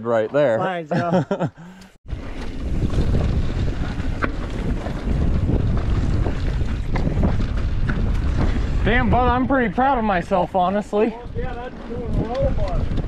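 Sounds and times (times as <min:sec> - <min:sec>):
bike clicks and rattles: 0:02.1 - 0:13.0
tyres rolling on dirt: 0:02.1 - 0:13.0
wind rumbling on microphone: 0:02.1 - 0:13.0.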